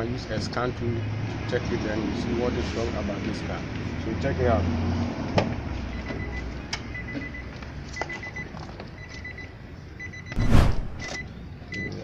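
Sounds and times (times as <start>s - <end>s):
high electronic beeps: 10.0s - 11.9s
loud thump: 10.4s - 11.1s.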